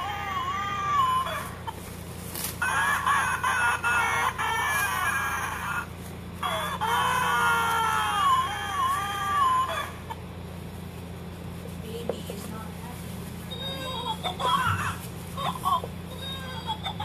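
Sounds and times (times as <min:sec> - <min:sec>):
recorded baby crying: 0:00.0 - 0:01.8, 0:02.6 - 0:10.2, 0:13.5 - 0:17.0.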